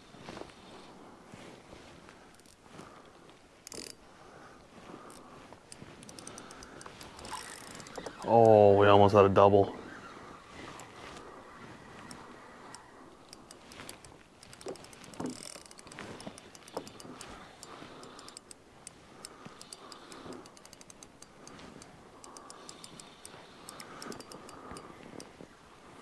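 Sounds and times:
fishing reel clicking: 3.6s - 4.0s, 5.1s - 9.0s, 9.9s - 11.0s, 12.0s - 25.4s.

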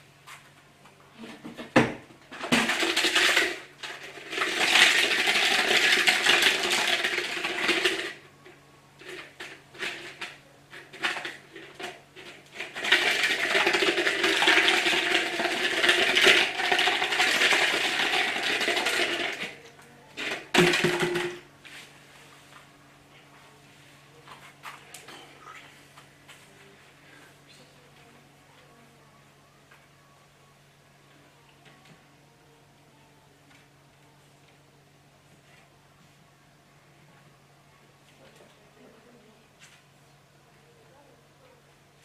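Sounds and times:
plastic bottle rattling: 2.4s - 8.2s, 12.6s - 19.6s.

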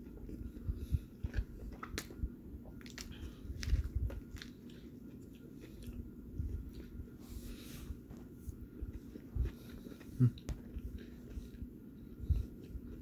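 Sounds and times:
person biting and chewing food: 0.0s - 6.1s.

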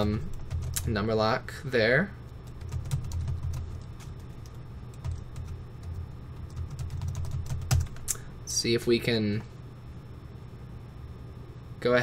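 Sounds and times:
laptop keyboard typing: 0.0s - 1.0s, 2.3s - 8.1s
low steady hum: 0.0s - 12.0s.

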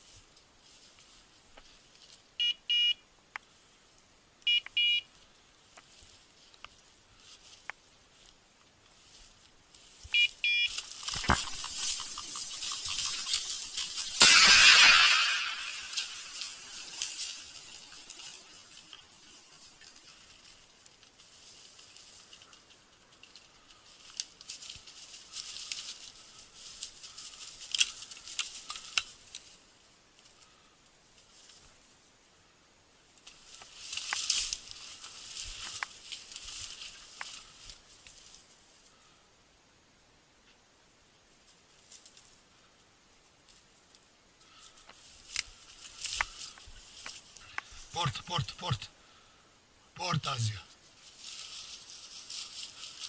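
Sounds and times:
rustling through dry brush: 0.0s - 2.4s, 5.1s - 32.2s, 33.0s - 39.4s, 41.2s - 48.0s, 50.0s - 53.0s
high electronic beeps: 10.2s - 10.7s.

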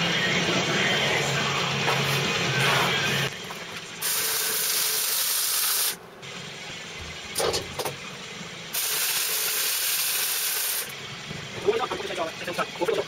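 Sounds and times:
welding arc crackling: 4.0s - 6.0s, 8.8s - 10.9s.

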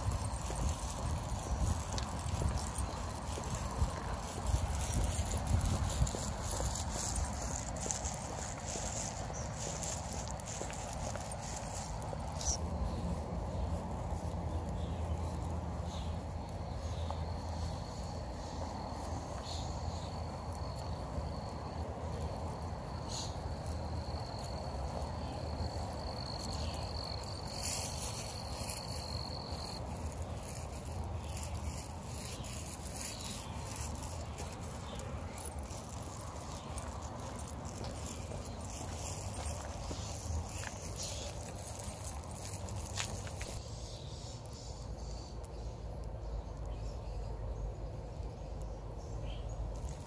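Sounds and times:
insect trilling: 0.0s - 12.6s.

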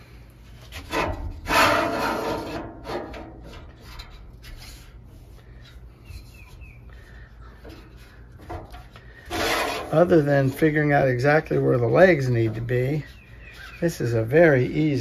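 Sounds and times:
rustling and scraping metal stand: 0.0s - 15.0s
falling bird chirps: 6.0s - 8.4s, 12.9s - 14.3s.

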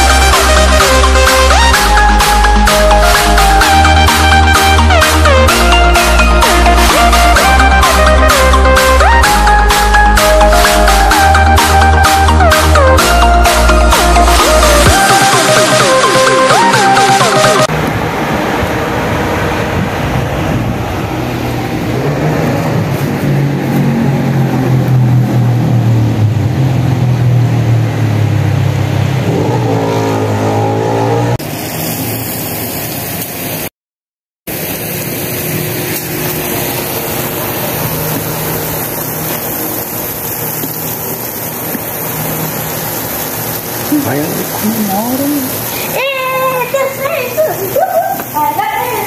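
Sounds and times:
water spraying from hose nozzle: 0.0s - 16.2s, 30.9s - 33.7s, 34.5s - 49.0s
electronic music with bass line: 0.0s - 17.7s.

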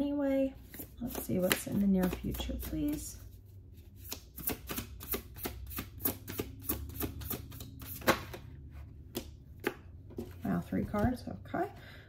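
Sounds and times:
cards being shuffled: 0.6s - 8.5s.

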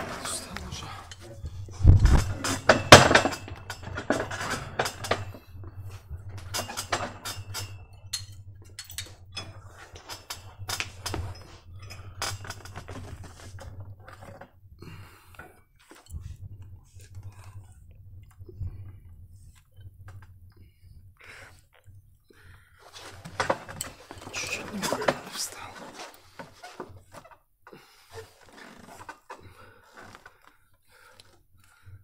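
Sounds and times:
metallic clinks of weight stack: 0.0s - 14.4s.

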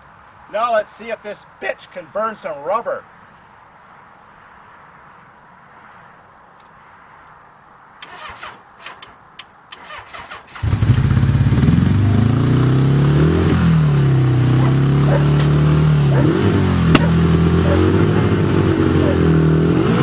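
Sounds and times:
crickets chirping: 0.0s - 10.8s
motorcycle engine running: 10.6s - 20.0s.

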